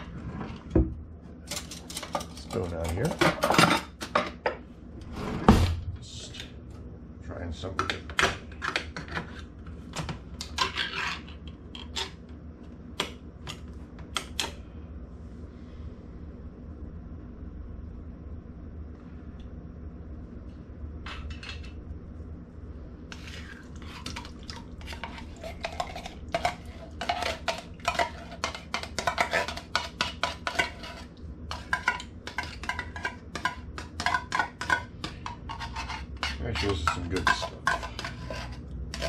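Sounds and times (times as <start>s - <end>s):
spoon scraping inside tin can: 10.4s - 12.2s, 23.1s - 39.0s
low hum: 14.5s - 26.5s.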